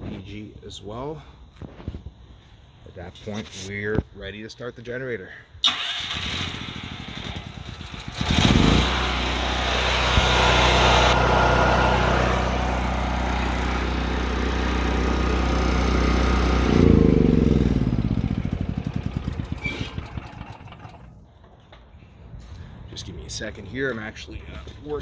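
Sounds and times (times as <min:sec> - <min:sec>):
generator engine running: 0:05.7 - 0:21.5.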